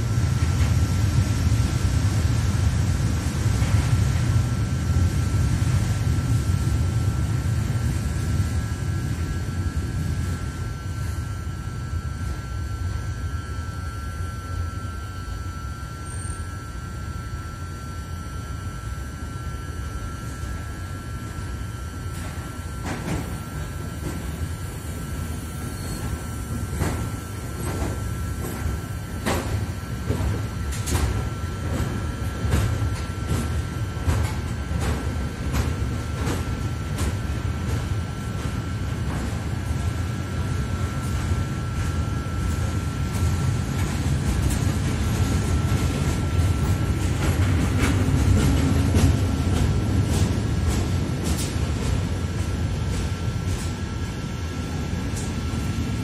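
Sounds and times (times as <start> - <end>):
freight train rolling past: 0.0 - 56.0
train wheels clacking: 22.1 - 55.7.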